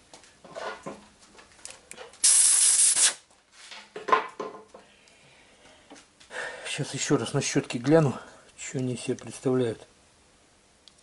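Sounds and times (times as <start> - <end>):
handling rustles and knocks: 0.0 - 2.2, 3.3 - 4.9
spray hissing: 2.2 - 3.2.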